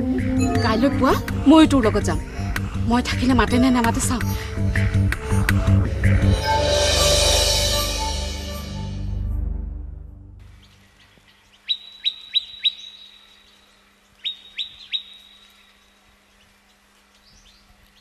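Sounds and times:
background music: 0.0s - 10.4s
bird calling sharp notes: 11.6s - 13.4s.

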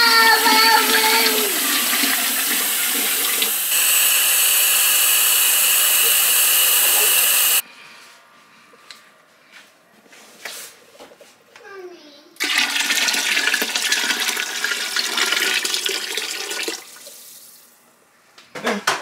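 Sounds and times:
faucet running into bowl: 0.0s - 7.6s, 12.4s - 17.4s
water poured into steel pot: 12.4s - 17.5s.

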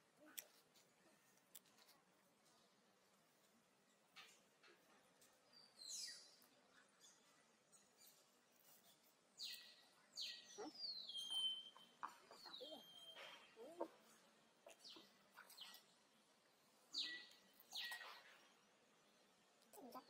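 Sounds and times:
baby monkey whimpering: 12.3s - 14.1s.

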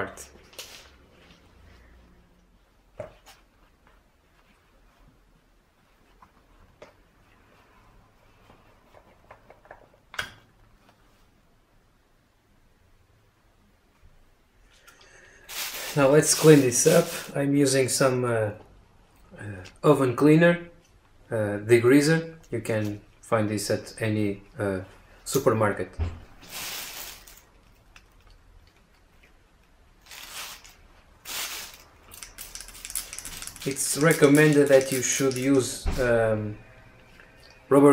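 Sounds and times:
spray bottle hissing: 30.1s - 31.9s.

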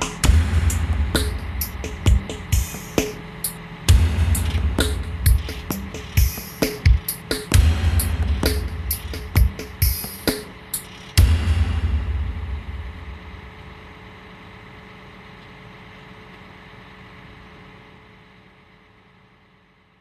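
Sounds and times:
booming drum hit: 0.0s - 3.1s, 3.9s - 10.4s, 11.2s - 14.2s
background music: 0.0s - 13.4s
road sweeper engine with whine: 0.0s - 19.8s.

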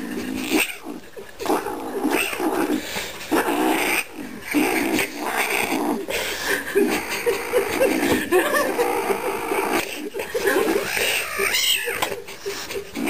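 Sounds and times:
kitten growling and yowling: 0.1s - 2.8s, 3.4s - 6.0s, 10.7s - 12.2s.

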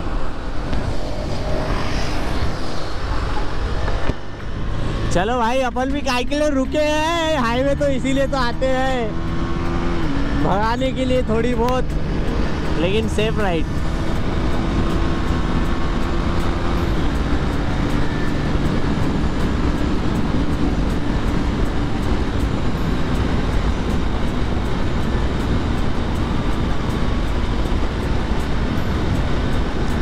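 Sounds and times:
wind noise on microphone: 0.0s - 6.2s.

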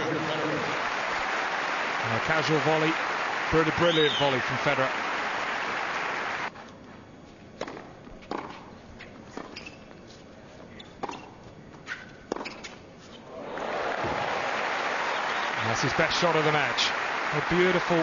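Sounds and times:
crowd applause: 0.0s - 6.5s, 13.3s - 18.0s
tennis ball bouncing: 7.6s - 8.7s, 12.2s - 12.7s.

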